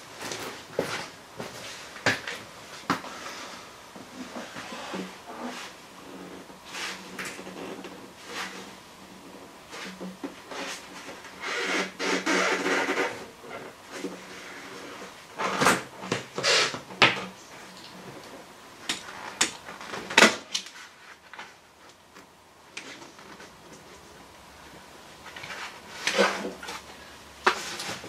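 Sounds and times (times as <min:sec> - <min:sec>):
sharp knocks and cracks: 0:18.8 - 0:20.8.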